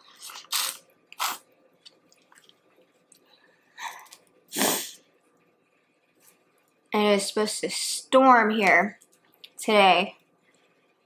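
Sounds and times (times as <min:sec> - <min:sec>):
woman sniffing: 0:03.8 - 0:05.0.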